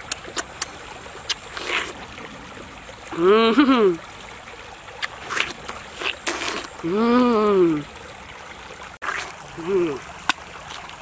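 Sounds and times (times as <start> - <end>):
lip smacks: 0.0 - 2.0
wet chewing and slurping: 0.0 - 2.8, 4.9 - 7.1, 9.0 - 11.0
person humming: 3.1 - 4.0, 6.8 - 7.8, 9.6 - 10.0.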